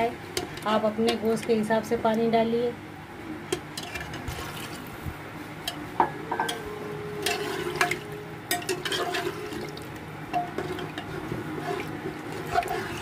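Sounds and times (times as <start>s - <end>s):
liquid sloshing: 3.8s - 5.0s, 7.2s - 13.0s.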